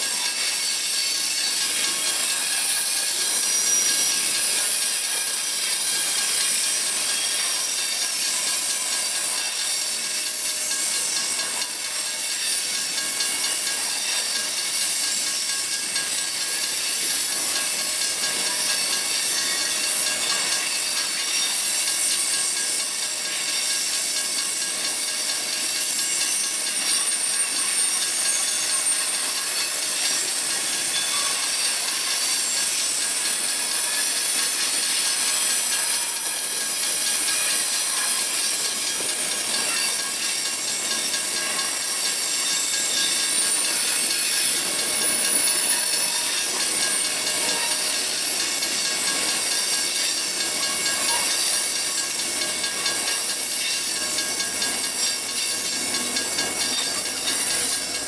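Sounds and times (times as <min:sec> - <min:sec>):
thin wheel squealing: 0:00.0 - 0:58.0
steel wheels rushing on rail: 0:36.8 - 0:58.0.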